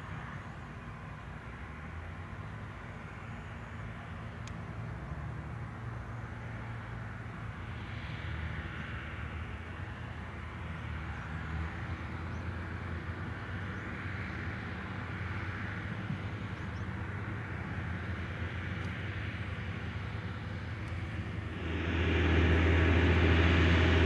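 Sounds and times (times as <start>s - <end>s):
tractor diesel engine under load: 9.8s - 24.0s.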